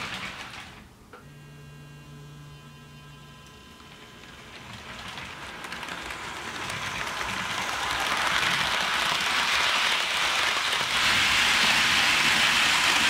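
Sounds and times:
model train rolling on track: 0:03.8 - 0:13.0.

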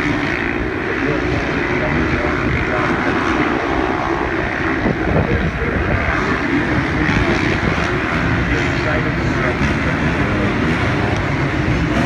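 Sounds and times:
motocross bike engines: 0:00.0 - 0:12.0
wind on microphone: 0:03.9 - 0:08.1.

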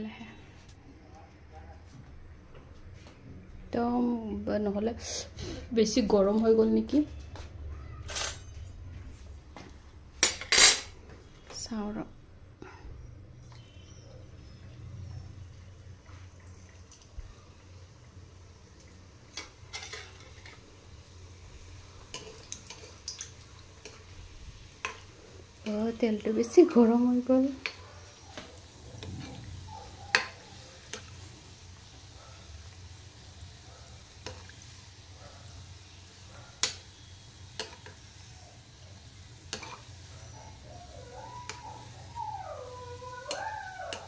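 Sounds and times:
food frying in oil: 0:15.4 - 0:44.0.

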